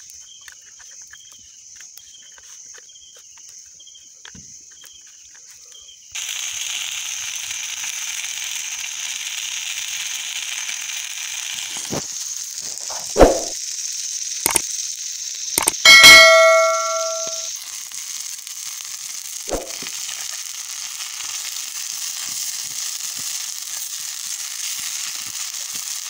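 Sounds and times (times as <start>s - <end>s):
fish sizzling in oil: 6.2s - 26.0s
sharp knock: 13.2s - 13.6s, 15.6s - 17.5s, 19.5s - 19.8s
short clicks: 15.6s - 17.4s.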